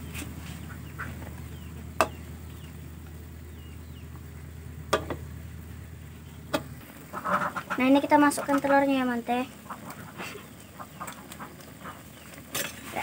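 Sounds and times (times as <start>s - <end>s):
low hum: 0.0s - 7.6s
ladle knocking against wok: 4.9s - 5.2s.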